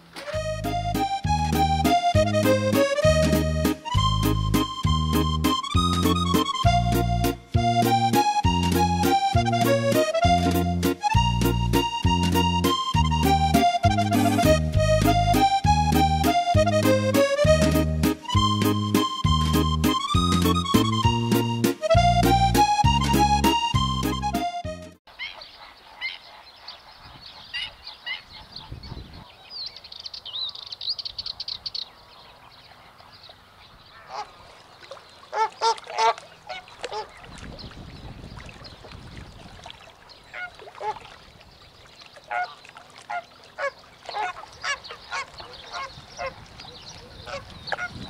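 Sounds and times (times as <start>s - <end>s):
flock of flamingos calling: 33.9s - 34.6s, 35.3s - 37.4s, 40.2s - 41.1s, 42.2s - 48.0s.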